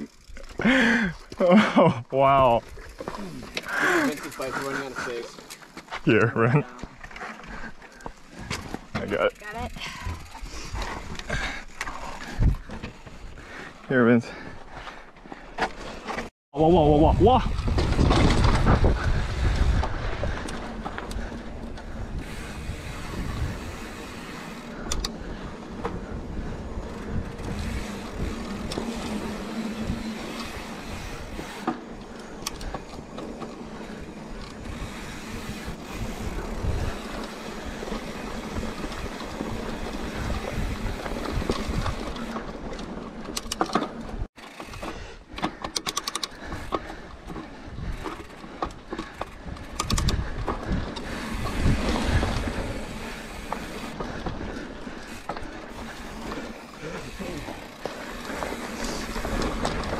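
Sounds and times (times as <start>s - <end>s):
bike rattling over bumps: 0.0s - 59.9s
tyres crunching over dirt and stones: 46.4s - 59.9s.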